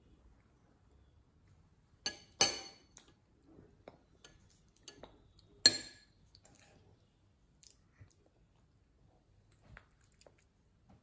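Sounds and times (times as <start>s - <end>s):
spoons clinking against bowls: 2.1s - 2.9s, 4.2s - 6.1s.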